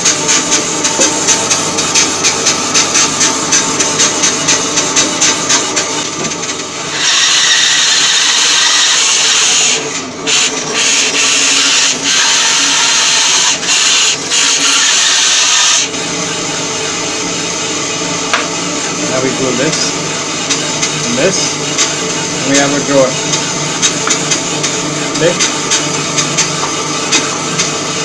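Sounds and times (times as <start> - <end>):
bandsaw running: 0.0 - 28.0
bandsaw cutting wood: 6.9 - 15.9, 21.0 - 21.6, 22.4 - 24.4, 25.1 - 25.5.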